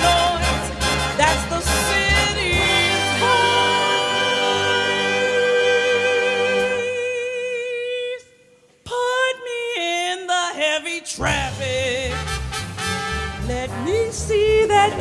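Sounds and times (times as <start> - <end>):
person singing with vibrato: 0.0 - 12.3, 13.4 - 15.0.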